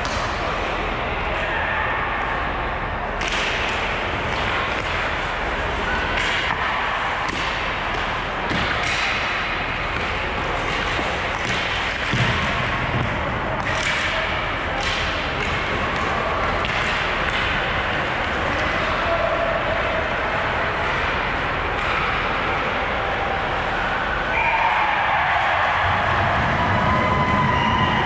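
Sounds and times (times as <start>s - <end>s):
hockey sticks and puck clacking: 0.0s - 0.9s, 3.1s - 28.0s
arena noise: 0.0s - 28.0s.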